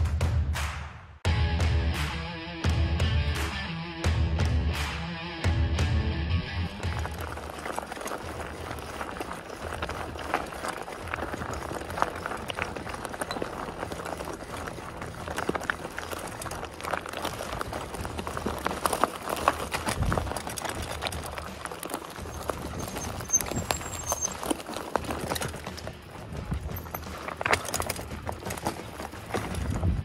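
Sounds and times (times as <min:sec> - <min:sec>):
bike rattling: 0:06.5 - 0:30.0
bike tyres crunching on gravel: 0:06.5 - 0:30.0.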